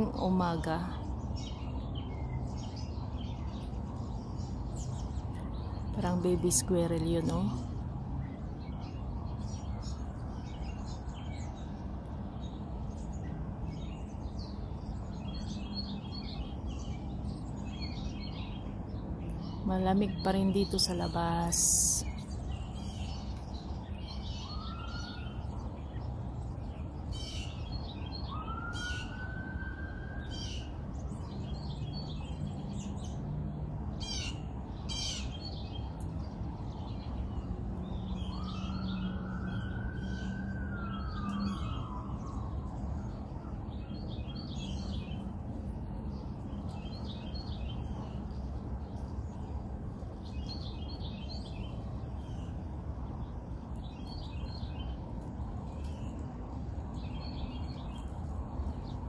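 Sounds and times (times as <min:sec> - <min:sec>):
low traffic rumble: 0:00.0 - 0:59.0
songbirds chirping: 0:00.0 - 0:59.0
wind: 0:00.0 - 0:59.0
distant siren wailing: 0:23.7 - 0:32.2, 0:34.4 - 0:45.8.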